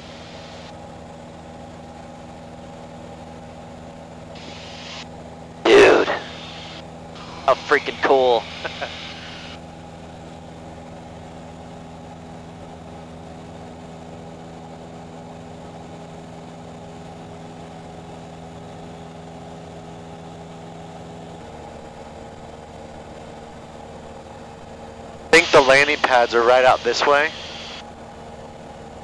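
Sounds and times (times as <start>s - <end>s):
aircraft engine and propeller droning: 0.0s - 29.0s.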